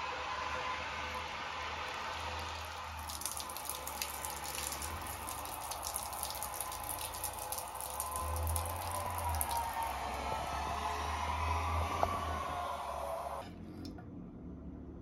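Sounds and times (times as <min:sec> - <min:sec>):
water pattering onto soil: 0:03.0 - 0:10.0.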